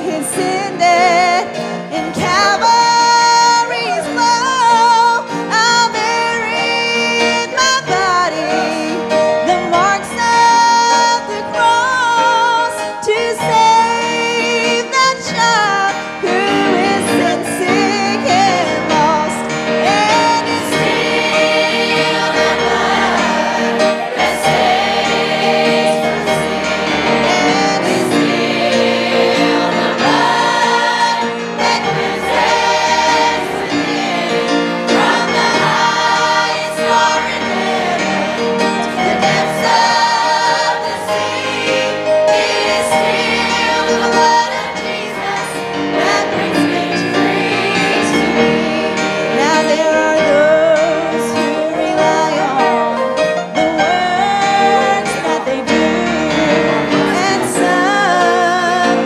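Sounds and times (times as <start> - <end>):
woman singing lead: 0.0 - 21.0, 47.8 - 59.0
church choir singing gospel: 0.0 - 59.0.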